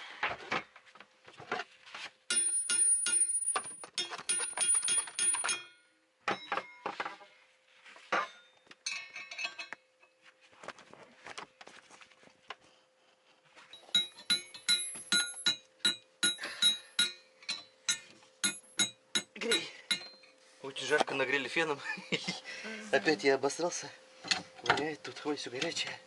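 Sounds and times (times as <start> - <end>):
metal tools clinking: 2.3 - 5.8, 8.2 - 9.7, 13.8 - 15.6
ringing metallic clatter: 2.3 - 5.8.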